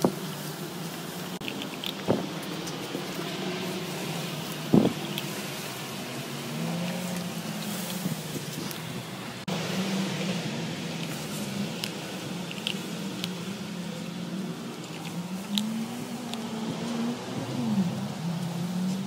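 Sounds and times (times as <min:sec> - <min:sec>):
kibble crunching: 0:01.4 - 0:08.9, 0:10.8 - 0:16.5.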